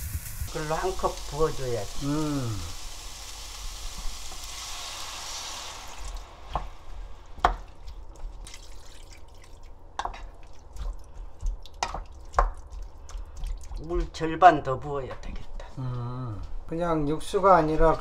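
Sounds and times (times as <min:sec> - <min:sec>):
water poured into pan hissing: 0:00.0 - 0:06.5
wooden spoon knocking pan: 0:07.4 - 0:07.7, 0:11.4 - 0:14.1.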